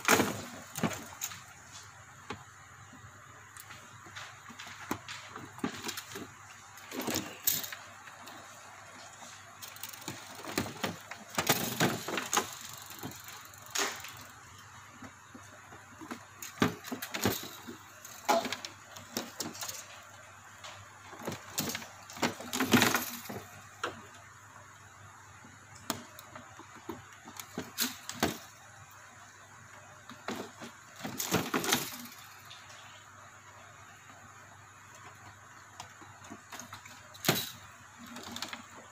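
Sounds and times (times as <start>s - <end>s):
wire connectors clicking and rustling: 0.0s - 33.0s, 33.6s - 38.9s.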